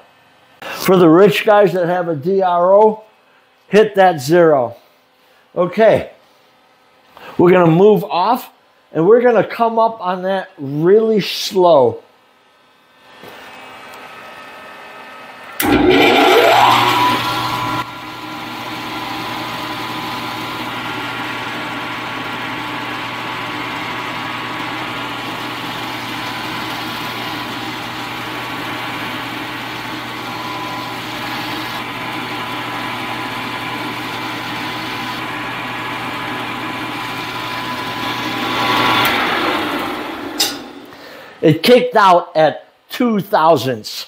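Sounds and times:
mill-drill spindle motor humming: 15.2 - 41.1.

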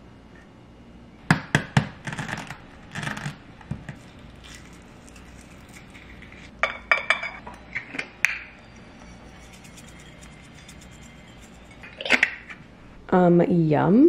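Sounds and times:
egg shell crackling: 2.2 - 6.6, 8.3 - 12.6.

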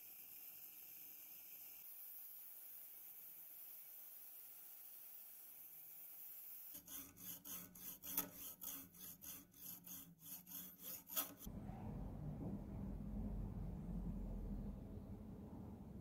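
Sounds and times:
hand file rasping on metal: 6.7 - 11.5
steady low hum: 11.1 - 16.0.

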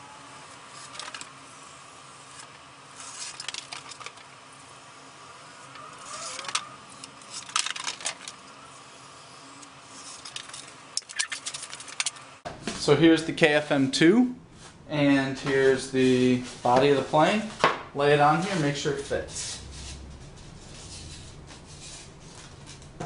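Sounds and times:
marker squeaking along ruler: 5.7 - 7.1.

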